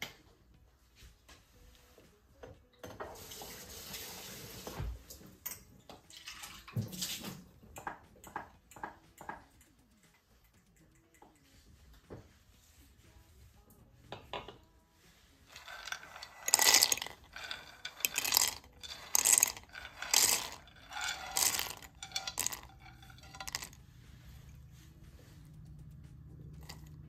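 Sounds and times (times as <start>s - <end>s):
peanuts clattering into metal jar: 15.5s - 23.8s, 26.6s - 26.9s.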